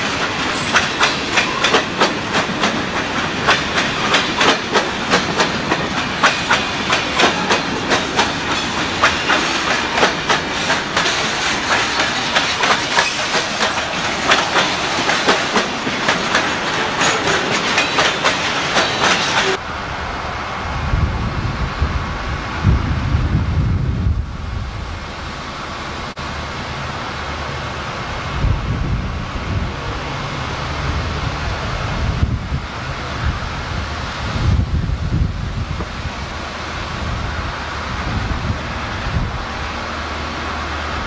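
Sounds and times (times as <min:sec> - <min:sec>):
train wheels clicking over rail joints: 0:00.0 - 0:19.6
train rolling hiss: 0:00.0 - 0:41.0.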